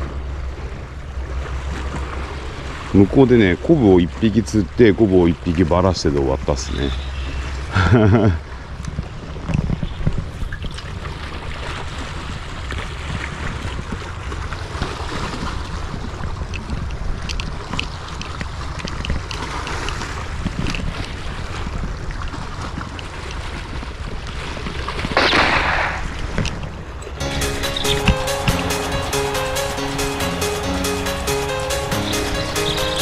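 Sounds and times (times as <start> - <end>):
wind buffeting microphone: 7.4 - 27.2.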